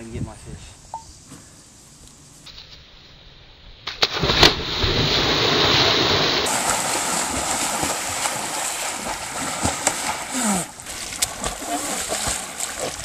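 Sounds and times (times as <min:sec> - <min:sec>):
splashing water: 0:03.9 - 0:13.0.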